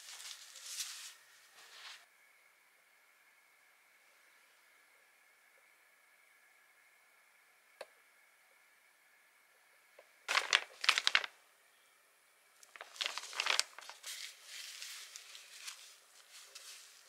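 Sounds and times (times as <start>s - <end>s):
plastic packaging crinkling: 0.0s - 1.2s, 10.3s - 11.4s, 12.6s - 17.0s
diaper rustling: 10.3s - 11.3s, 12.6s - 17.0s.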